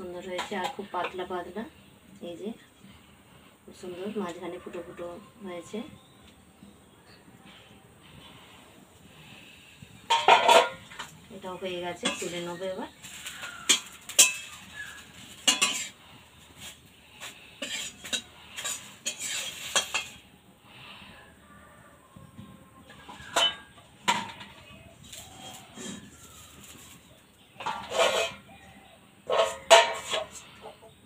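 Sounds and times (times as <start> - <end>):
metal spatula scraping and tapping: 10.1 - 11.2, 12.0 - 16.0, 16.6 - 20.2, 22.9 - 27.0, 27.6 - 28.5, 29.3 - 30.7.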